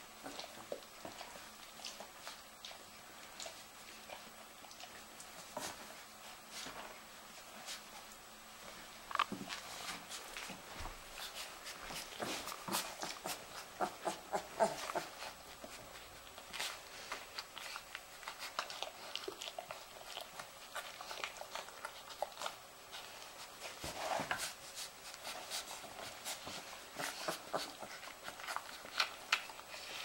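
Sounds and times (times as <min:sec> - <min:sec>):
puppies squeaking and grunting: 0:11.2 - 0:23.0, 0:25.4 - 0:30.0
puppies suckling wet smacking: 0:11.3 - 0:23.8, 0:24.9 - 0:30.0.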